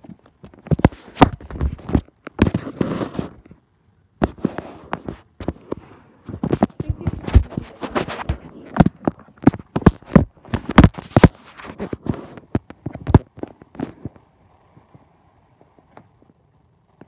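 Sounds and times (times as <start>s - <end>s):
faint steady hum: 0.0s - 17.0s
phone handling knocks and rubbing: 0.5s - 3.4s, 4.2s - 14.0s.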